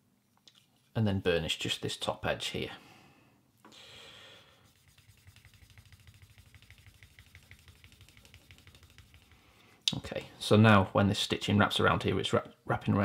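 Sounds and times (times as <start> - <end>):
burnisher rubbing leather edge: 4.6 - 9.4.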